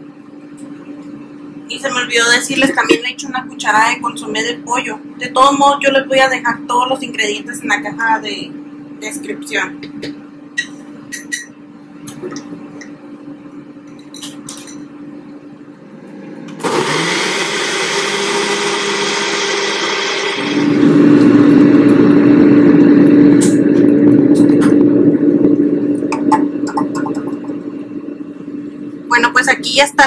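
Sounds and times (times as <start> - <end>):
blender whirring: 15.9 - 27.8.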